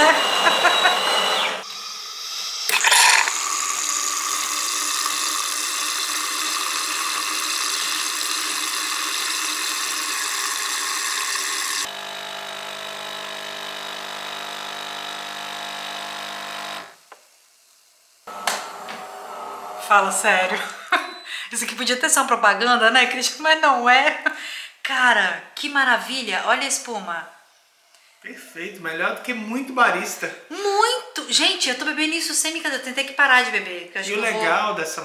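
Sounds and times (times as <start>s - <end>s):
milk frother hissing: 0.0s - 20.1s
espresso pump humming: 2.6s - 17.0s, 18.3s - 19.8s.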